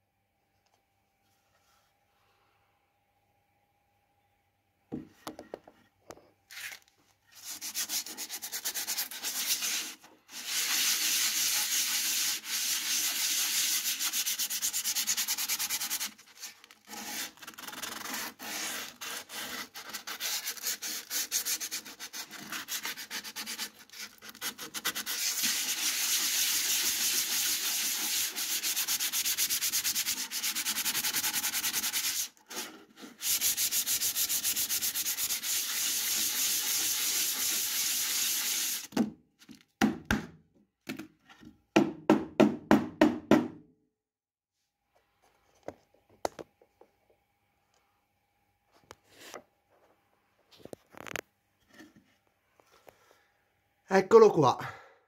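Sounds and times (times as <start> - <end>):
sanding wooden board by hand: 7.4 - 38.9.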